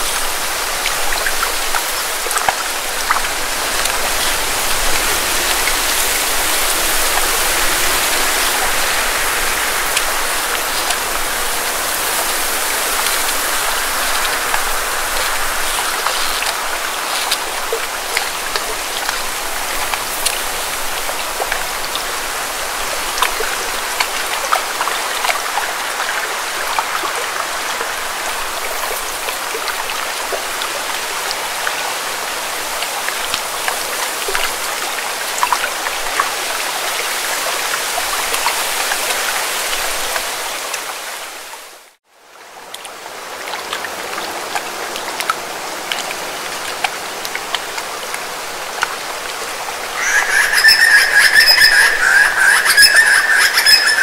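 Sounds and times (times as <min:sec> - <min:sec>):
water lapping on rocks: 0:00.0 - 0:41.0
birds chirping: 0:50.0 - 0:54.0.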